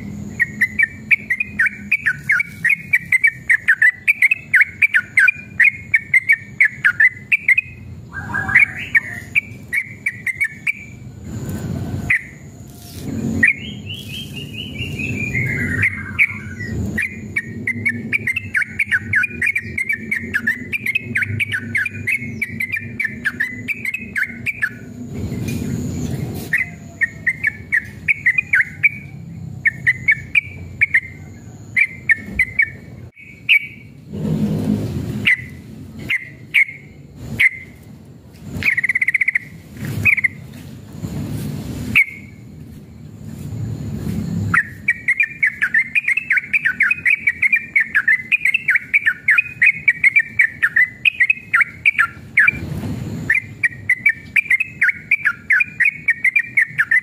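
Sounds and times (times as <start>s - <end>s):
bird singing chattering notes: 0.0s - 11.1s, 13.2s - 34.0s, 35.2s - 37.9s, 38.5s - 40.5s, 41.9s - 42.6s, 44.4s - 57.0s
rushes of noise: 10.8s - 27.2s, 33.8s - 45.1s.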